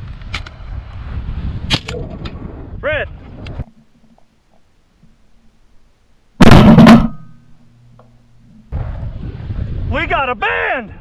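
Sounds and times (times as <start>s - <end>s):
wind buffeting microphone: 0.0s - 3.8s, 8.7s - 11.0s
shotgun blast: 6.4s - 7.4s.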